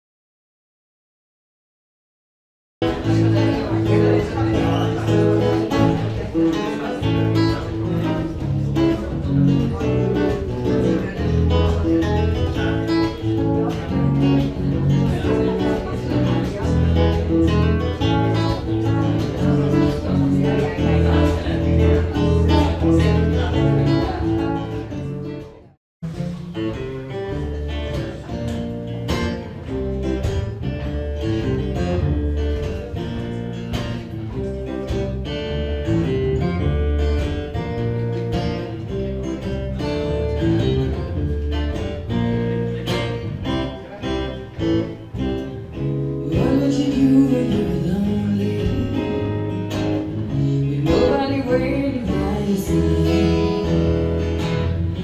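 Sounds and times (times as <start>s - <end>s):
acoustic guitars playing: 2.8s - 55.0s
woman singing: 46.2s - 49.4s, 50.7s - 54.1s.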